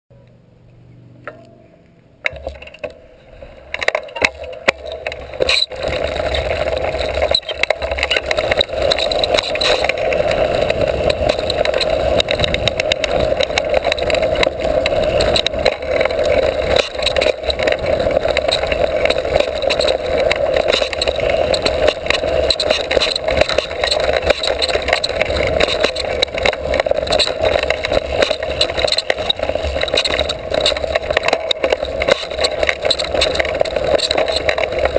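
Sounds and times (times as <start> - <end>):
bike rattling over bumps: 2.2 - 34.9
wind and tyre rush: 2.4 - 34.9.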